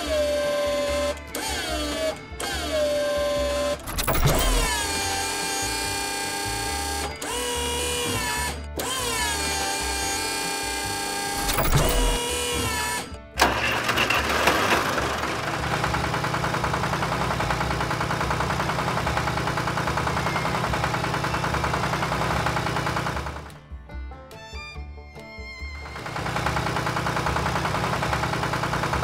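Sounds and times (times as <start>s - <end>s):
electric machine whir: 0.0s - 23.5s, 25.8s - 29.0s
tractor engine chugging: 11.3s - 23.6s, 25.7s - 29.0s.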